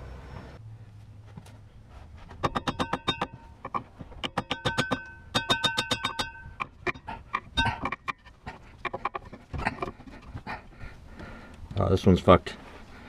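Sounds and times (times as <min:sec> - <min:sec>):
hand ratchet clicking: 0:02.4 - 0:09.9.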